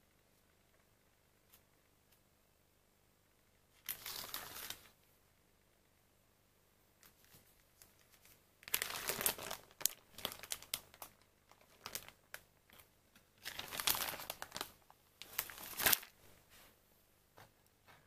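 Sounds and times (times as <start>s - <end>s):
plastic film crinkling: 3.8s - 5.0s, 7.1s - 16.2s.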